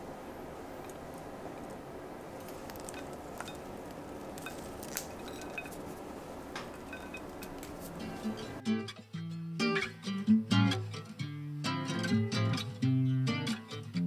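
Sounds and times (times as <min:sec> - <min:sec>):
low background noise: 0:00.0 - 0:13.9.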